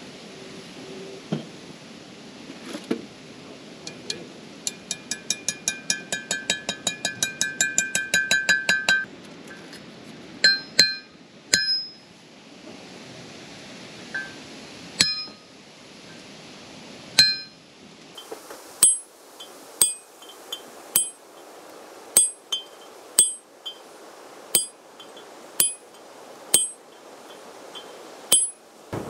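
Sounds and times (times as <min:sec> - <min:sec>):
ringing metallic taps: 0:04.7 - 0:09.1, 0:10.4 - 0:12.0, 0:15.0 - 0:15.4, 0:17.2 - 0:17.6, 0:18.8 - 0:21.2, 0:22.2 - 0:23.8, 0:24.6 - 0:26.8, 0:27.8 - 0:28.6
hammer striking metal punch: 0:10.4 - 0:12.0, 0:15.0 - 0:15.4, 0:17.2 - 0:17.6, 0:18.8 - 0:19.0, 0:19.8 - 0:20.0, 0:21.0 - 0:21.2, 0:22.2 - 0:22.4, 0:23.2 - 0:23.4, 0:25.6 - 0:25.8, 0:26.6 - 0:26.8, 0:28.3 - 0:29.0.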